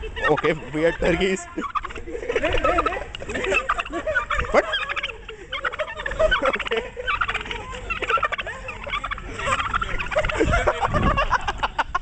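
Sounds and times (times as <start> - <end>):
turkeys gobbling: 0.0 - 11.7.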